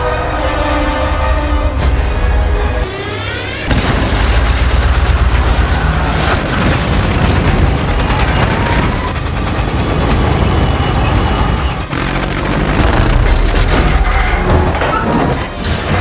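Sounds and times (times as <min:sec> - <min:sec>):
deep mechanical rumble: 0:01.0 - 0:16.0.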